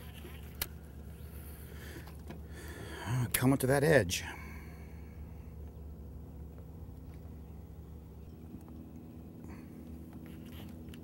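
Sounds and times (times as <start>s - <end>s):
electric motor low hum: 0.0s - 3.4s, 4.3s - 11.0s.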